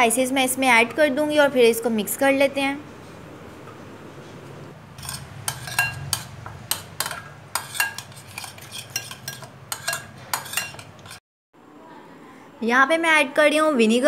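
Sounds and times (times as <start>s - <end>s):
spoon clinking glass bowl: 5.0s - 11.2s
spoon stirring thick yogurt: 5.0s - 11.2s.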